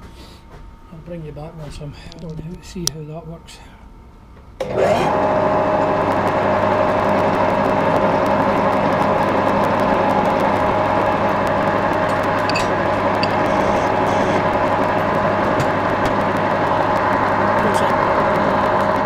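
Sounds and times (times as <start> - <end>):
lathe motor whining and humming: 4.6 - 19.0.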